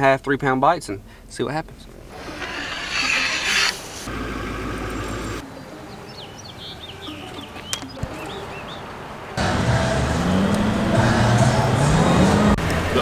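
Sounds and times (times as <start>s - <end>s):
birds chirping: 4.1s - 9.4s.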